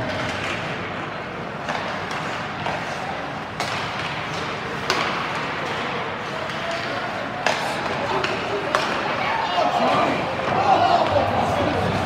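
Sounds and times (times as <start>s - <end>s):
hockey stick hitting puck: 0.0s - 1.0s, 1.6s - 9.2s
arena noise: 0.0s - 12.0s
faint voices: 4.4s - 12.0s.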